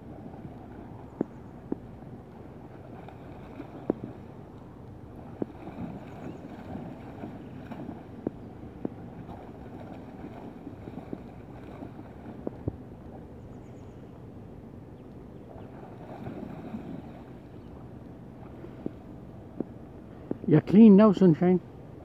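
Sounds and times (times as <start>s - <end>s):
shallow river rushing: 0.0s - 13.2s, 15.5s - 19.7s
wind buffeting microphone: 0.0s - 20.6s.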